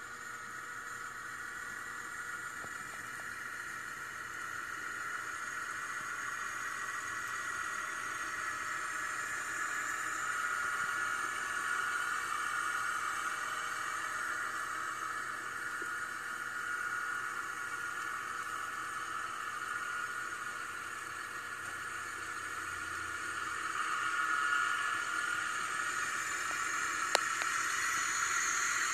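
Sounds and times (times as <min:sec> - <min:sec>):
steady hiss: 0:00.0 - 0:28.9
faint ticks: 0:26.4 - 0:28.3.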